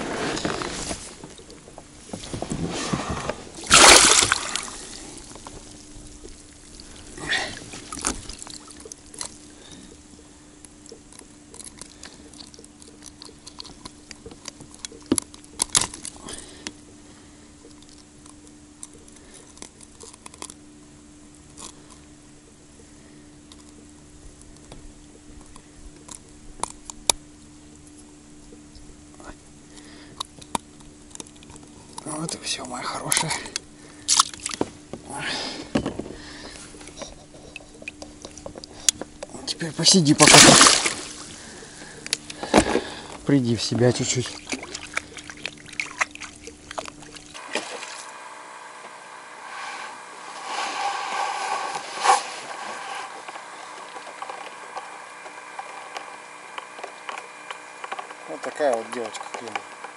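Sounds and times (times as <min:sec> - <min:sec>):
water splashing off a net: 0:03.5 - 0:05.8, 0:40.2 - 0:41.4, 0:44.2 - 0:48.1.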